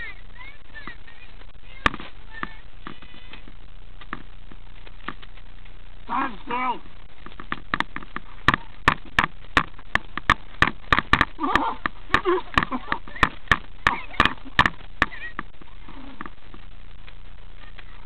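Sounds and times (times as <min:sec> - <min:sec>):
sharp knocks and clicks: 0:07.2 - 0:15.6.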